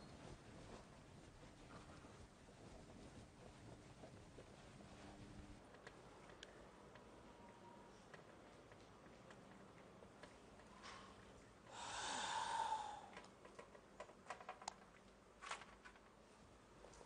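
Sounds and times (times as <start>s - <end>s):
person sighing: 11.7s - 13.2s.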